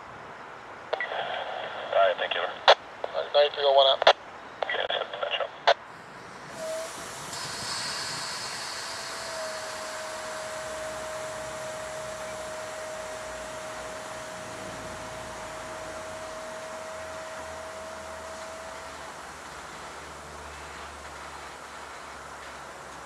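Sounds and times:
steady locomotive whine: 0.0s - 23.0s
locomotive hissing rush: 4.6s - 23.0s.

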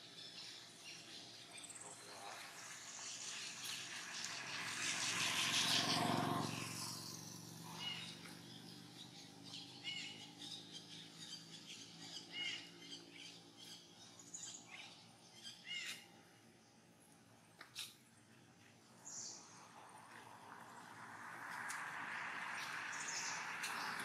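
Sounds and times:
bird calling: 14.7s - 16.1s.

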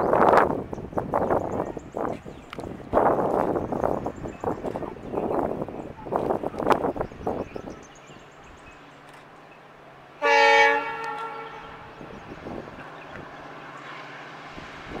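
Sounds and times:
train running: 0.0s - 15.0s
locomotive horn blast: 10.2s - 12.1s.

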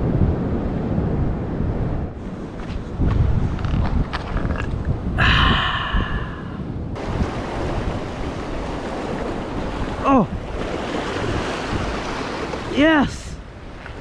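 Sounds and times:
wind buffeting microphone: 0.0s - 14.0s
surf washing over rocks: 4.2s - 14.0s.

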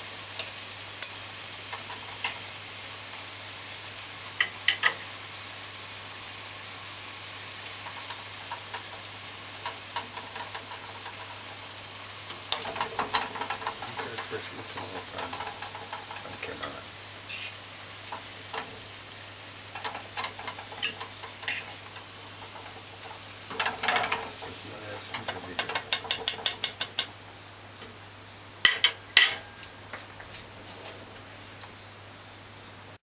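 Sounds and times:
faint oil sizzling: 0.0s - 32.4s
fork scraping a metal pot: 12.5s - 17.6s, 19.8s - 21.9s.

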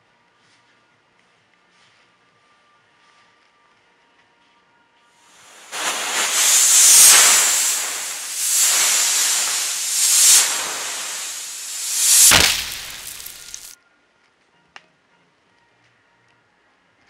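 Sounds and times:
rocket exploding bang: 5.4s - 13.7s
rocket motor hissing: 5.4s - 13.7s.

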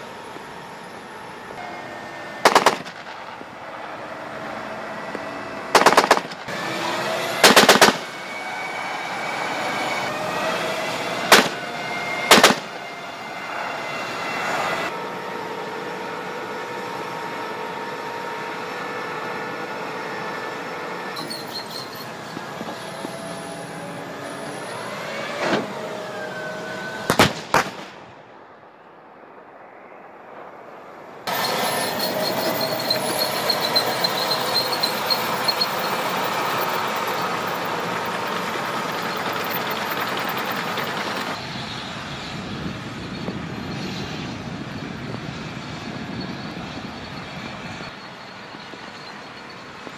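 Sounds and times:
tank turbine engine whine: 0.0s - 49.9s
sharp bangs: 2.4s - 3.7s, 5.7s - 8.2s, 11.1s - 12.8s, 27.0s - 28.2s.

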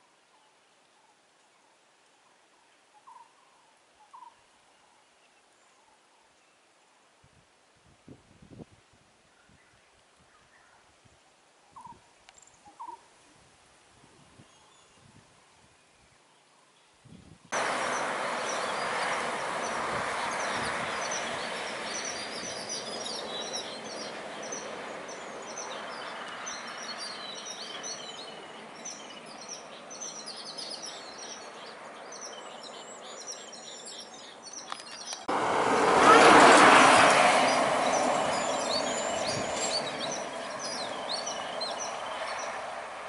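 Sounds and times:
birds chirping rapidly: 17.6s - 35.3s, 37.0s - 42.8s.

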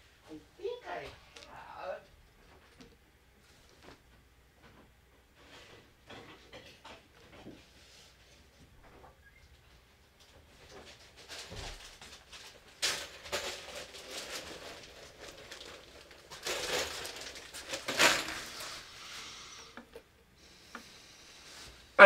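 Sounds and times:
handling scraping and rustling: 10.6s - 19.8s.

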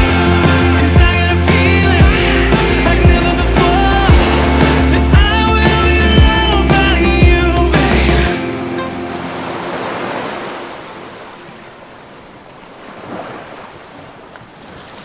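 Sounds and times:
music ringing out: 0.0s - 9.8s
lake waves washing on shore: 0.9s - 7.1s, 7.9s - 15.0s.

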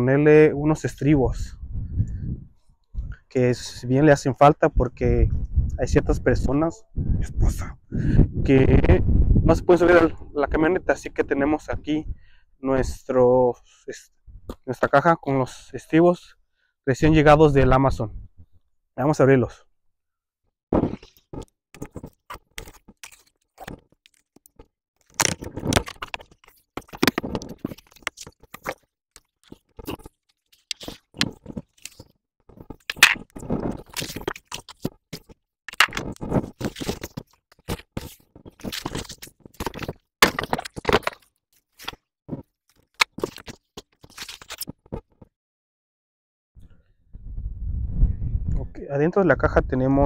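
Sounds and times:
cardboard box scraping and crunching: 35.9s - 41.9s.

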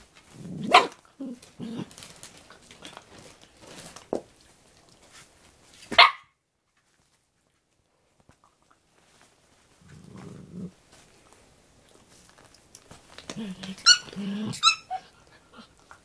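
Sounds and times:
dog growling low: 9.8s - 10.8s, 13.3s - 15.8s.

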